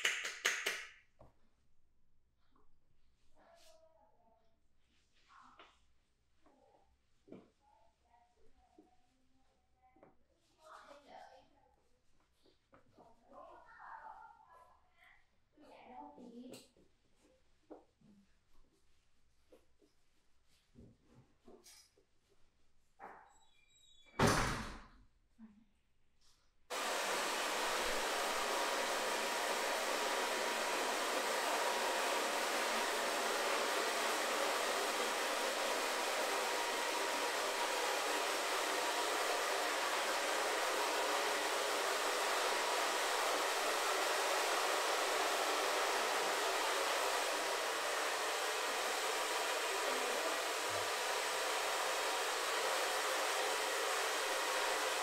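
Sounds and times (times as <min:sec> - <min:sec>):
hair dryer blowing: 0:26.7 - 0:55.0.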